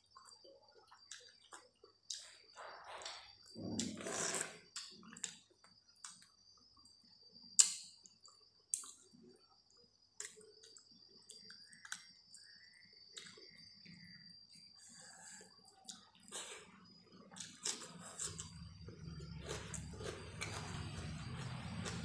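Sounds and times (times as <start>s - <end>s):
wet chewing: 17.3s - 22.0s.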